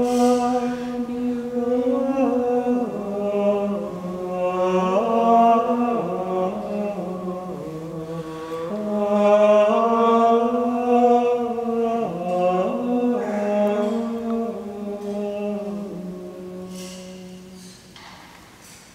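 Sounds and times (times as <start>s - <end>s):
male voices chanting: 0.0s - 17.9s.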